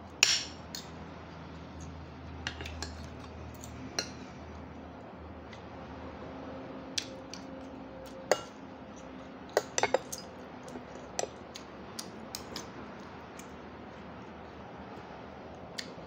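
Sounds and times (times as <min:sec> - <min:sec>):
cutlery clinking on plate: 0:09.6 - 0:10.3.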